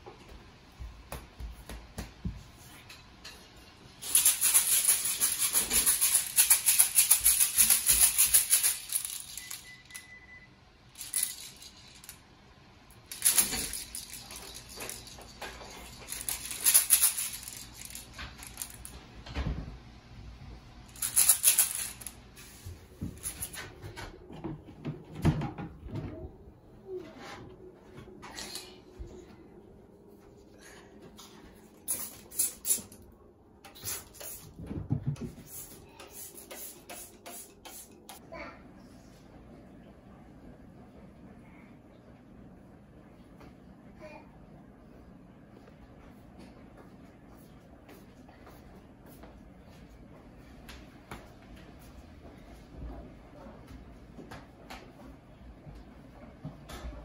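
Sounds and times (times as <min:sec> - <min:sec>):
plastic toy rattle shaken: 0:04.0 - 0:09.7, 0:11.0 - 0:12.2, 0:13.1 - 0:18.9, 0:20.9 - 0:22.2, 0:31.9 - 0:33.0.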